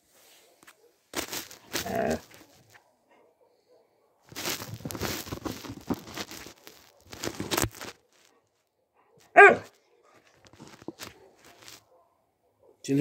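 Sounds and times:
rustling and scraping near microphone: 0.0s - 3.0s, 4.3s - 8.6s, 9.2s - 12.0s
dog barking: 1.8s - 4.6s, 8.0s - 12.9s.

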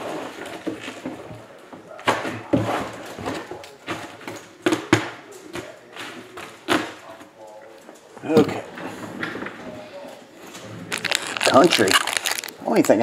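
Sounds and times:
rustling: 10.4s - 13.0s.

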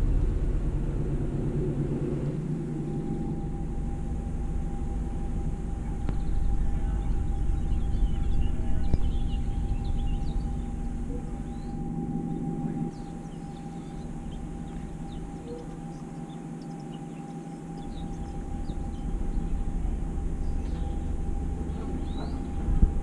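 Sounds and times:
diesel boat engine rumbling: 0.0s - 23.0s
birds chirping: 1.6s - 23.0s.

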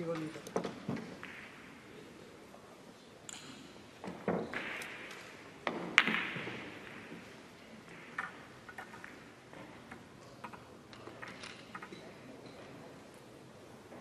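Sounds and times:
billiard balls clicking: 3.3s - 12.6s.

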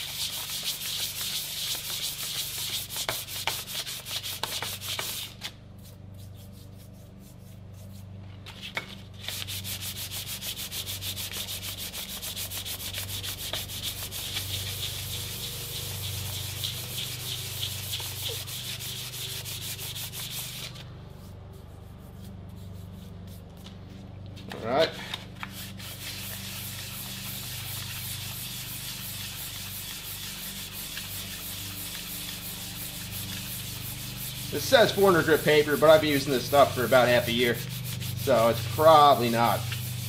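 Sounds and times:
sandpaper rasping on metal: 0.0s - 8.0s, 9.2s - 23.4s, 24.9s - 40.0s
steady low hum: 0.0s - 40.0s.

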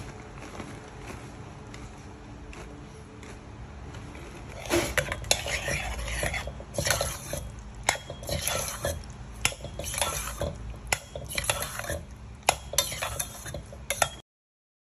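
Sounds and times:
fork scraping in pot: 4.3s - 14.2s
fork clinking against pot: 4.6s - 14.2s.

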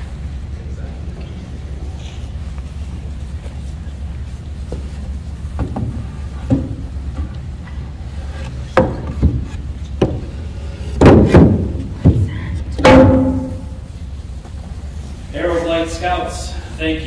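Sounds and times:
wooden planks knocking: 5.5s - 7.4s, 8.4s - 13.8s.

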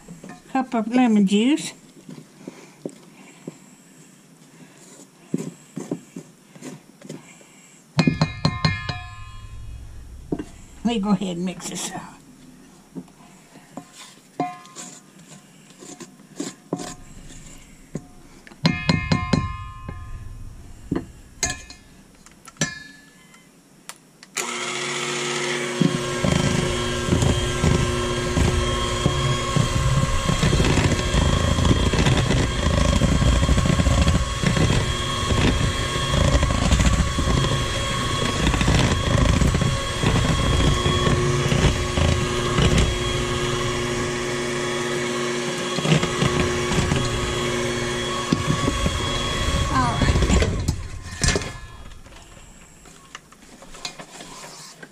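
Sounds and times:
electric hand mixer whine: 8.2s - 13.5s, 16.7s - 22.2s, 24.4s - 53.2s
spatula scraping metal bowl: 13.8s - 20.3s, 25.8s - 44.4s.

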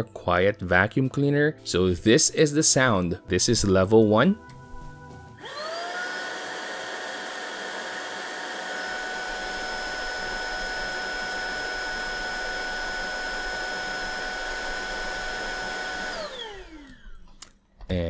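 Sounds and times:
cordless vacuum motor whine: 5.4s - 17.4s.

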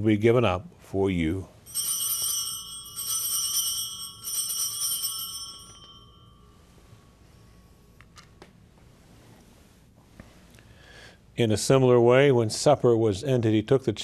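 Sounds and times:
altar bells ringing: 1.6s - 7.8s.

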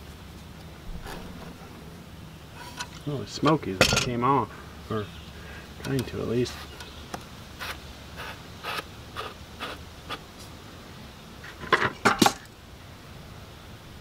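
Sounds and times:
light metallic clicks and scrapes: 2.6s - 4.1s, 5.8s - 7.2s.

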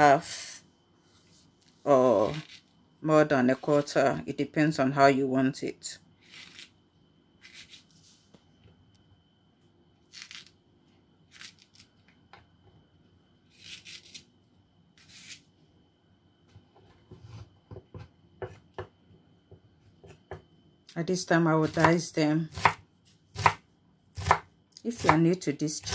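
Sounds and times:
knife slicing okra: 7.4s - 7.8s, 10.2s - 10.5s, 13.5s - 14.2s
knife chopping on wooden board: 22.5s - 23.6s, 24.2s - 25.2s.

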